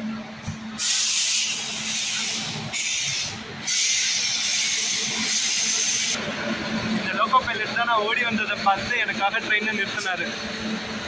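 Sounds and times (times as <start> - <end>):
loud air hissing: 0.7 - 6.2.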